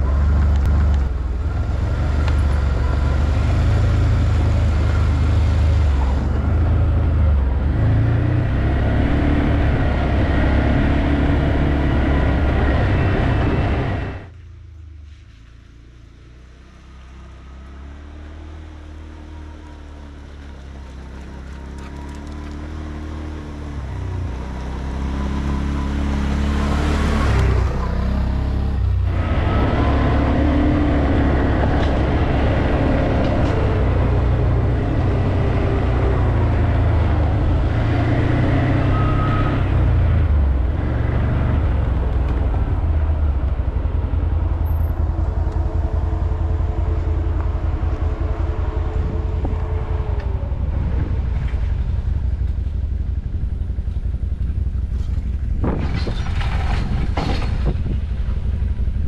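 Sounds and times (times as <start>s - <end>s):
atv engine revving: 21.2s - 56.5s.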